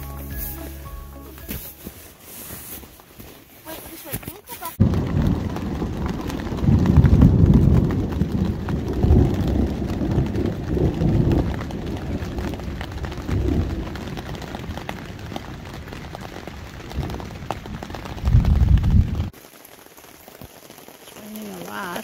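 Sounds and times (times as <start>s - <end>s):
rain pattering: 2.9s - 22.0s
thunder rumbling: 4.8s - 19.4s.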